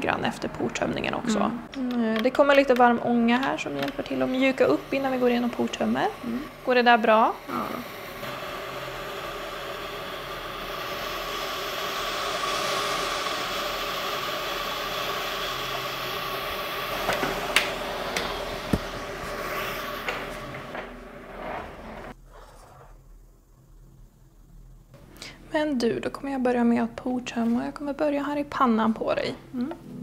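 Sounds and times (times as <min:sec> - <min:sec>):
steam hissing: 0:02.4 - 0:22.6.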